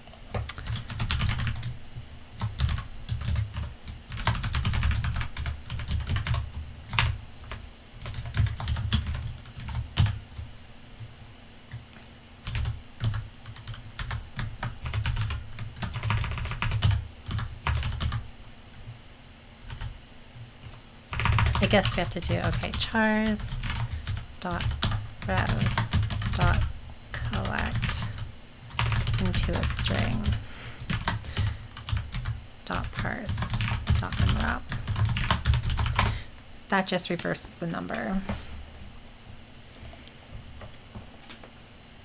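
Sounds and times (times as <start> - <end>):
typing on keyboard: 0.0 - 1.7, 2.4 - 10.4, 12.4 - 18.2, 20.6 - 22.8, 23.6 - 36.1.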